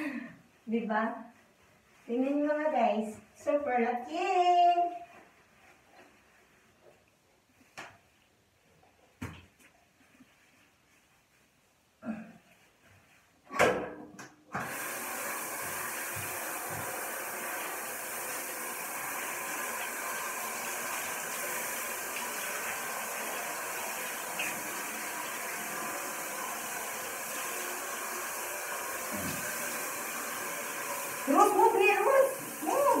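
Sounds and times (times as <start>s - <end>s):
shower head spraying water: 14.6s - 33.0s.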